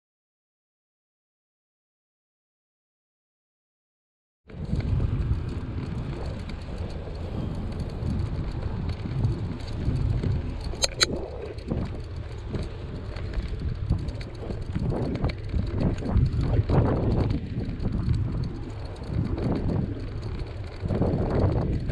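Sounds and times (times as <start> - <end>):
tyre rumble on asphalt: 4.5 - 21.9
wind buffeting microphone: 4.5 - 21.9
brief sharp high-pitched sounds: 10.8 - 11.1.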